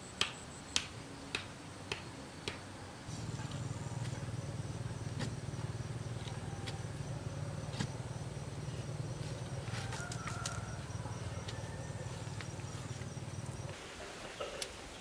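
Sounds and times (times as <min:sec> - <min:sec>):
steady low hum: 0:02.9 - 0:13.8.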